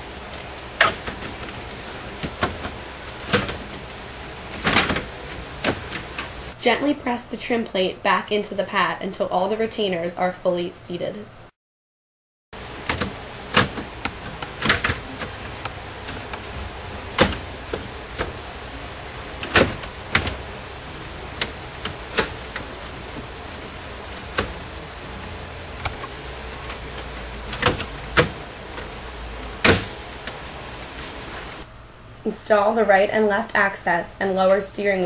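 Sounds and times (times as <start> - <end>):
steady hiss: 0.0 - 6.6, 12.6 - 33.1.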